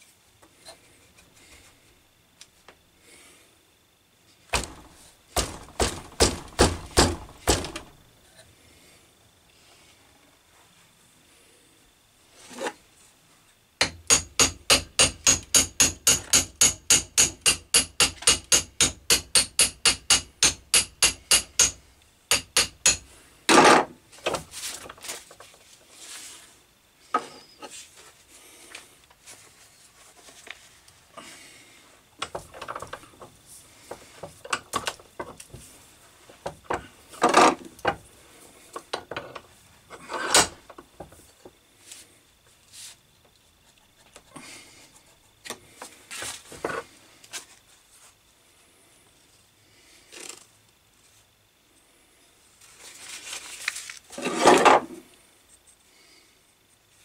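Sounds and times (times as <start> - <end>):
heavy hammer knocks: 4.6 - 7.9
hammer tapping metal: 13.8 - 23.1.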